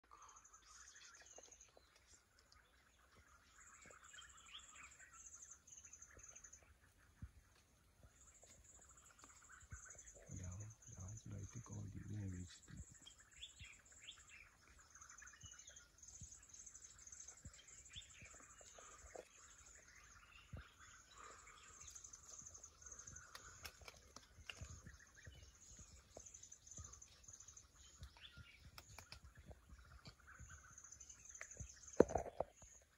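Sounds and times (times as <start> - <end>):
birds chirping and calling: 0.0 - 32.9.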